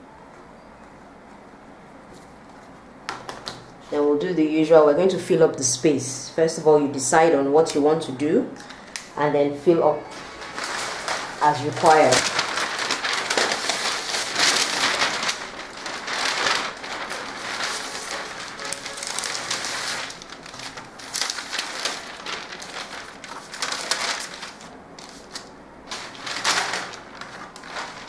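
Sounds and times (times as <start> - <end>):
paper rustling and crackling: 10.1 - 28.0.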